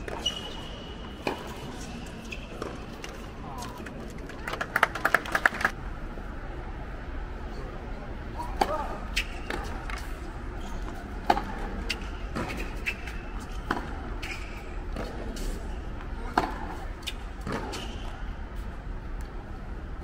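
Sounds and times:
tennis balls struck by rackets: 11.2 - 12.7.

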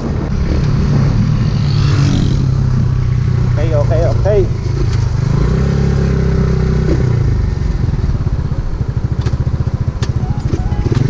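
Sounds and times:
motorcycle engine running: 3.0 - 11.0.

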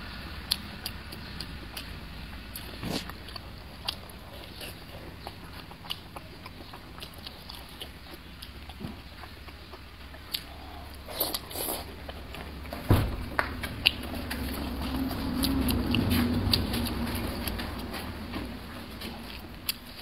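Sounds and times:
wet chewing: 0.5 - 12.8, 13.4 - 20.0
loud low thump: 12.9 - 13.4.

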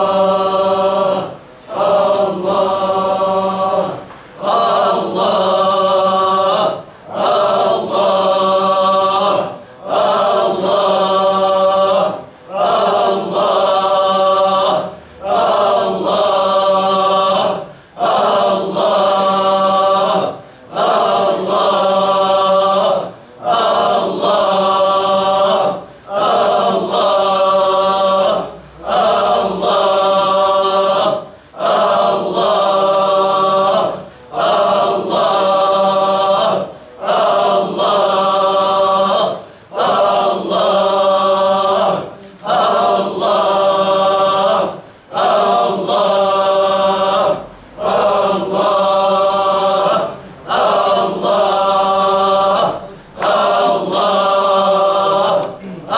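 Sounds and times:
men chanting in unison: 0.0 - 55.9.

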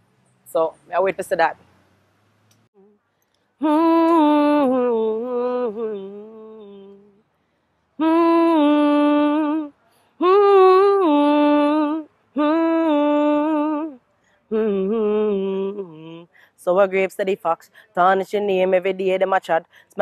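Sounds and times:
woman singing wordless melody: 3.6 - 7.3, 8.0 - 20.0.

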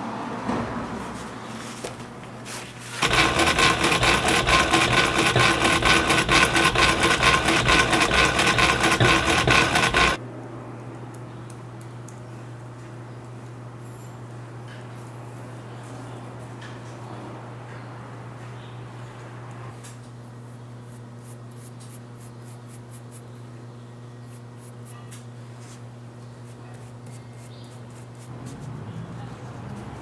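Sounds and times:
sewing machine stitching: 3.0 - 10.2.

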